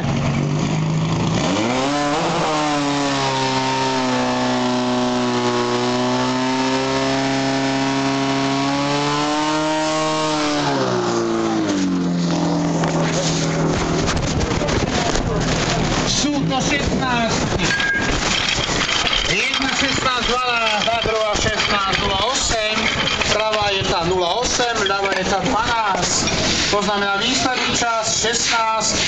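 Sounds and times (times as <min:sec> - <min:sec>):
fire pump engine running: 0:00.0 - 0:01.8, 0:10.4 - 0:29.0.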